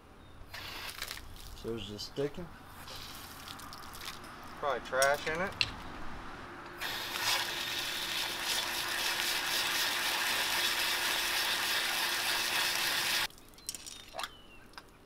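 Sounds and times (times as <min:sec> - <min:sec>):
water spraying onto concrete: 0:00.5 - 0:01.6, 0:06.8 - 0:13.3.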